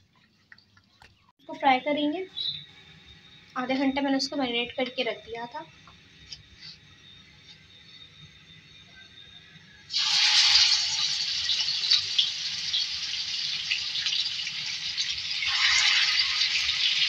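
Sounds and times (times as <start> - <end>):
fish sizzling in hot oil: 9.9 - 17.0.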